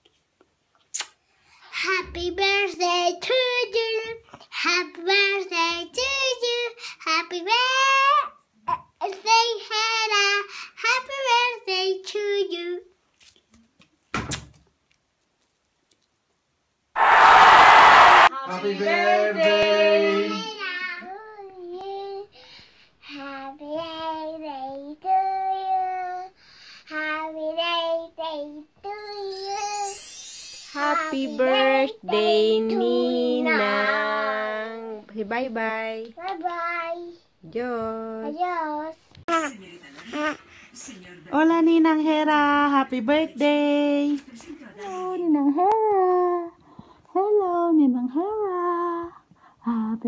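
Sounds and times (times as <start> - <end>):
girl singing: 1.8 - 8.3, 18.3 - 22.4, 23.0 - 35.1
girl singing held notes: 18.3 - 22.4, 28.2 - 35.1.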